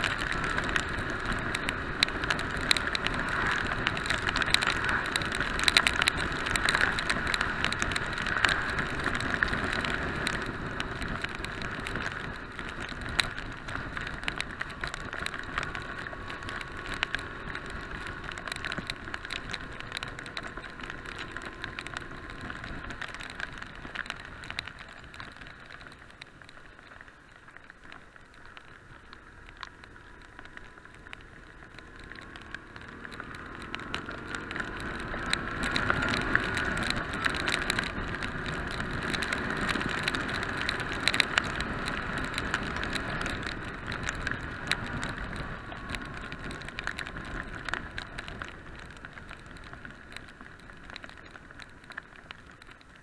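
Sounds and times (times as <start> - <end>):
heavy rain on camera: 0.0 - 53.0
muffled wind: 0.0 - 53.0
wet road noise: 0.0 - 53.0.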